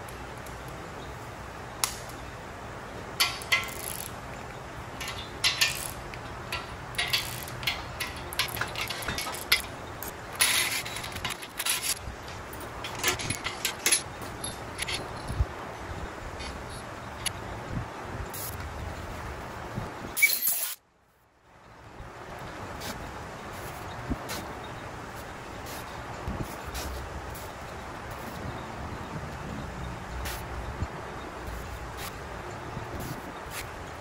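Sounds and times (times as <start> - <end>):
metal parts and tools clinking: 3.2 - 4.2, 4.9 - 15.4, 20.2 - 20.8.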